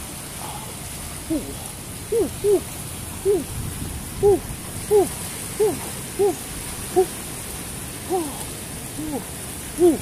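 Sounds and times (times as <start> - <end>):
man hooting through lips: 1.3 - 3.5, 4.2 - 7.2, 8.1 - 10.0.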